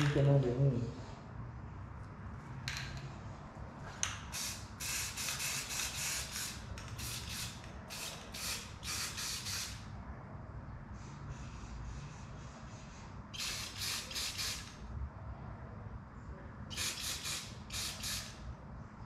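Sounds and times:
spray paint can hissing: 4.3 - 9.8, 13.4 - 14.8, 16.7 - 18.4.

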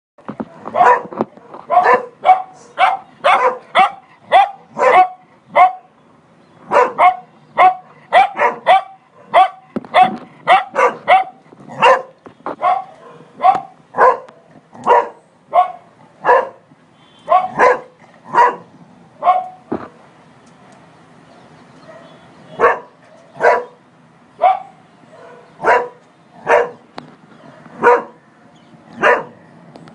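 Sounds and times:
dog barking: 0.7 - 1.1, 1.7 - 5.9, 6.7 - 16.6, 17.2 - 19.6, 21.8 - 23.8, 24.4 - 26.8, 27.5 - 28.2, 29.0 - 29.4.

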